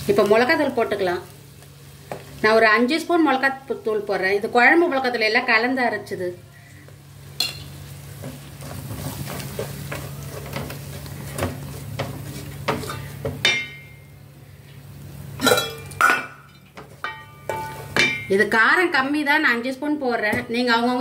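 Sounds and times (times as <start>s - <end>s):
low sizzle: 0.0s - 21.0s
metal spatula scraping pot: 11.3s - 13.2s
metal clinks against pot: 15.4s - 18.3s.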